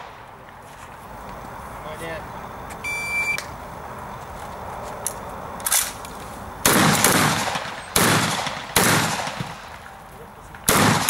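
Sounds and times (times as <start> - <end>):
shotgun shots echoing: 6.6 - 9.9, 10.5 - 11.0.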